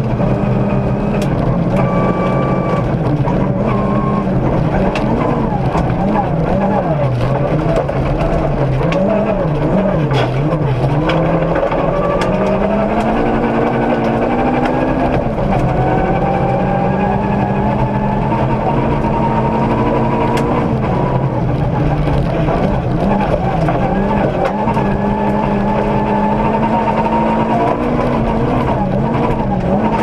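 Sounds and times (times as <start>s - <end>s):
car engine revving: 0.0s - 30.0s.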